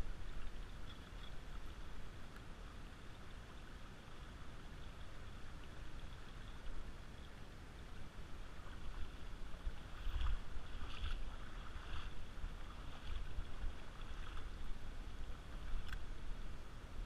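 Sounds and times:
wading steps splashing in water: 8.5s - 14.9s.

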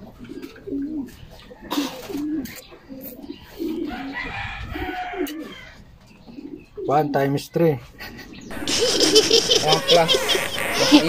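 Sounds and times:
doves cooing: 0.0s - 6.9s, 7.9s - 11.0s.

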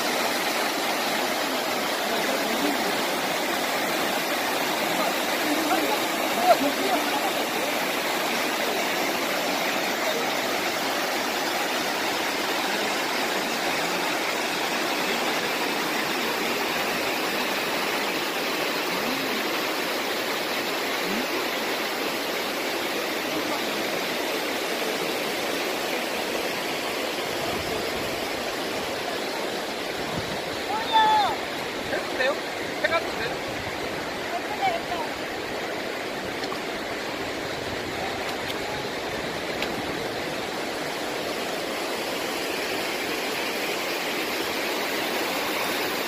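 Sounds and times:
waterfall roaring: 0.0s - 46.0s.

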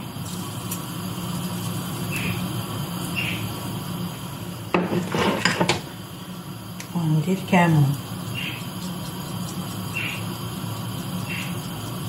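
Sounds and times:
salt shaker shaking: 0.1s - 3.2s, 7.6s - 12.0s.

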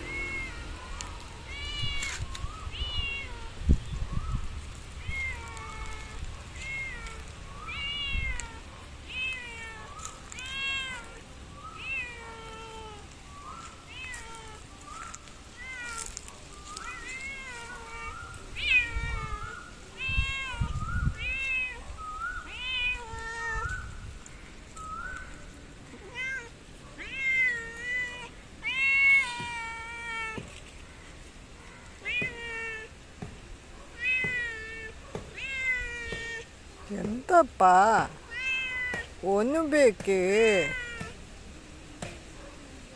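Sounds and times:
cat meowing: 0.0s - 3.6s, 5.0s - 24.0s, 24.8s - 30.6s, 31.9s - 33.0s, 34.0s - 36.5s, 38.1s - 39.2s, 40.4s - 41.2s.

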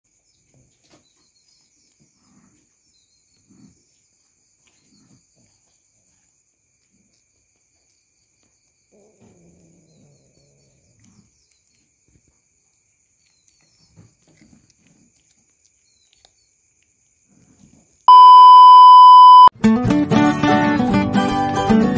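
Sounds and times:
cat chewing and crunching: 0.8s - 18.1s
night insects droning: 1.3s - 18.0s
low cat vocalization: 8.9s - 11.6s.

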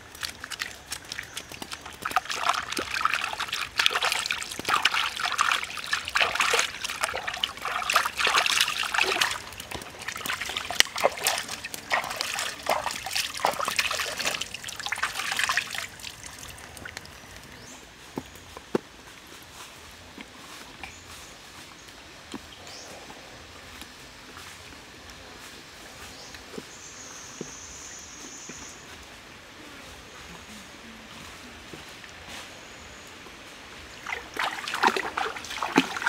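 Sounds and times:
hands splashing in stream water: 0.0s - 17.2s, 34.0s - 36.0s
water trickling: 0.0s - 17.7s, 33.8s - 36.0s.

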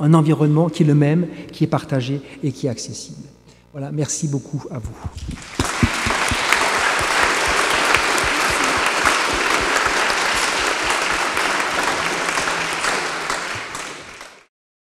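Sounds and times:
audience applauding: 5.0s - 14.5s.

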